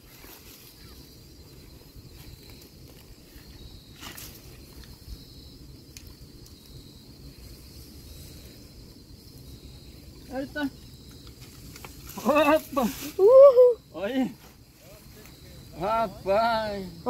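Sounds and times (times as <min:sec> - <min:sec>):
insect chirring: 0:00.0 - 0:17.0
low rumbling wind: 0:01.0 - 0:12.1.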